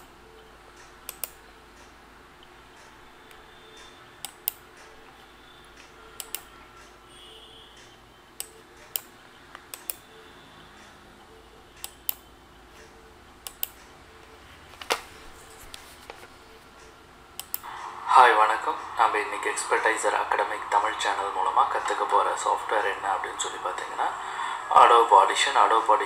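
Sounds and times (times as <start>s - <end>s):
computer mouse clicking: 0.0s - 7.0s, 7.8s - 10.2s, 10.8s - 17.7s
faint room hiss: 0.0s - 26.0s.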